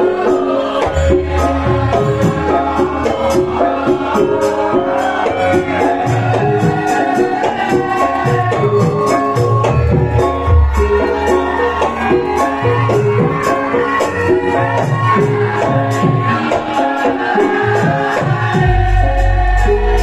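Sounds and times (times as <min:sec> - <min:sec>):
struck pitched percussion melody: 0:00.0 - 0:16.2
rattling percussion: 0:00.0 - 0:20.0
low sustained tones: 0:10.0 - 0:12.1.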